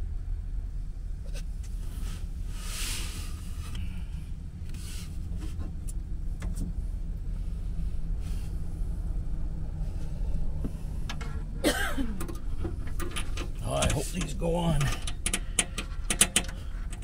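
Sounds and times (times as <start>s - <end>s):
low rumble: 0.0s - 17.0s
rustles: 1.2s - 11.5s.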